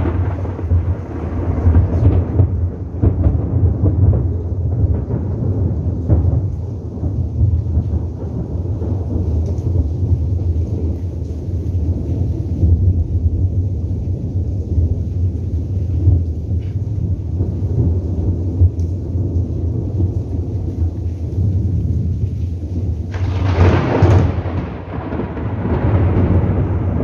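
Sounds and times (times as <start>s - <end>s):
sharp thunder peal: 0.0s - 10.4s, 22.8s - 27.0s
rolling thunder: 0.0s - 27.0s.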